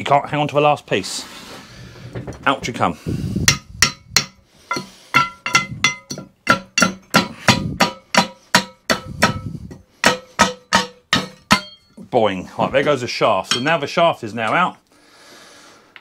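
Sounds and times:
hammer blows on metal shaft: 3.1 - 12.0.

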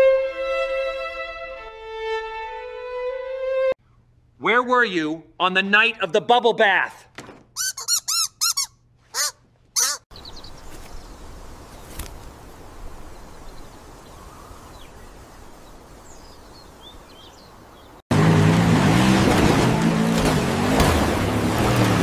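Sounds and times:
rubber duck squeaking: 7.6 - 10.1
outdoor background hiss: 10.2 - 18.0.

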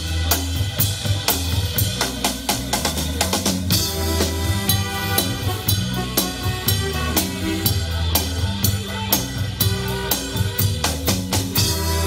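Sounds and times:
drum kit beat: 0.0 - 12.0
live jazz band playing: 0.0 - 12.0
saxophones: 3.7 - 12.0
trumpet: 3.7 - 12.0.

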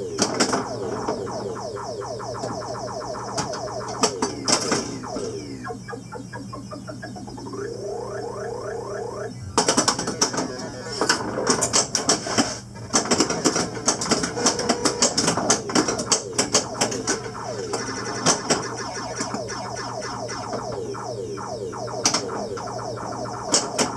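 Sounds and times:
rising electronic sound effects: 0.0 - 11.1, 14.0 - 23.9
pinball electronic tones: 0.0 - 12.0, 13.0 - 23.9
pinball flippers and ball clacking: 12.9 - 17.1.

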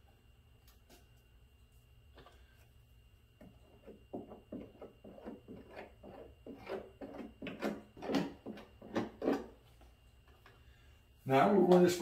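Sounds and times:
squeegee scraping: 3.8 - 9.6.

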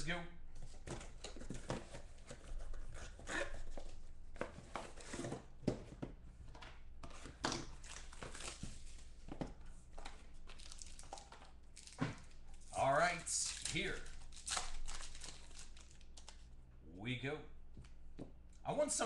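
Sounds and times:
plastic wrap crinkling and tearing: 7.7 - 9.0, 10.4 - 16.5.

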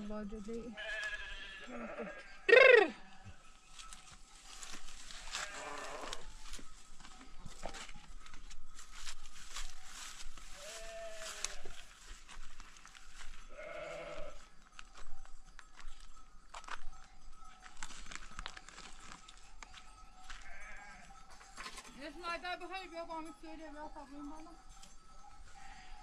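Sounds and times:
sheep bleating: 0.8 - 3.4, 5.2 - 6.3, 10.6 - 11.8, 13.5 - 14.4, 20.4 - 21.1.

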